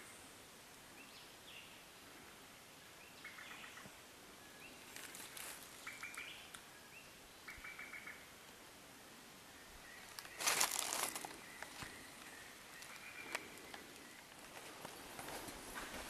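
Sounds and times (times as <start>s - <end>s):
faint background hiss: 0.0s - 16.0s
bird calling: 3.1s - 8.4s, 9.5s - 16.0s.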